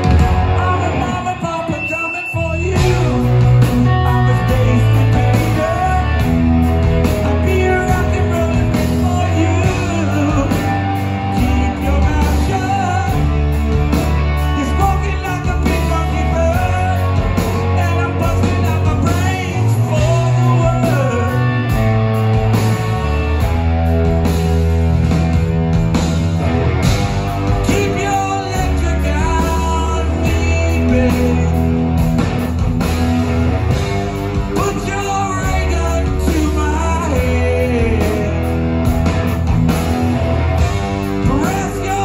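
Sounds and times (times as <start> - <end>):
person singing: 0.0 - 13.4, 14.3 - 21.9, 27.5 - 32.0, 34.4 - 38.8, 41.1 - 42.0
live rock band playing: 0.0 - 42.0.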